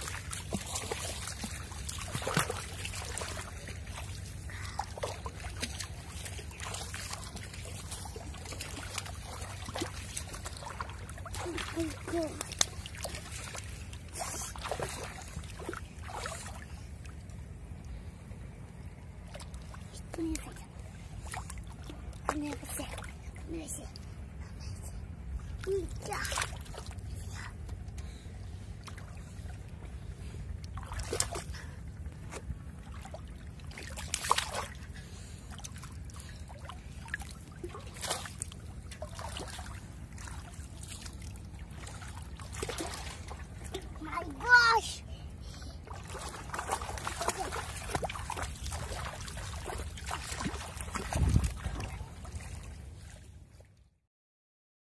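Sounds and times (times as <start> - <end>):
hands splashing in shallow water: 0.0 - 16.6, 32.2 - 43.8, 45.9 - 53.2
steady low rumble: 0.0 - 53.8.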